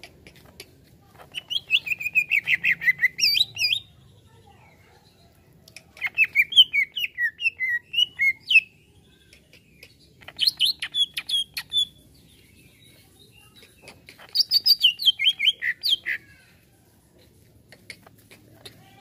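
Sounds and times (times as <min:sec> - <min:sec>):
bird chirping and whistling: 0:01.4 - 0:03.8, 0:06.1 - 0:08.7, 0:10.4 - 0:11.9, 0:14.4 - 0:16.2.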